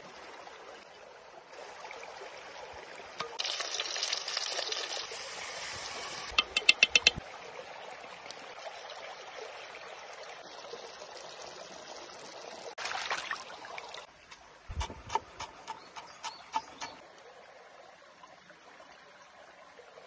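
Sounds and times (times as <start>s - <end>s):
water trickling: 1.5s - 14.7s.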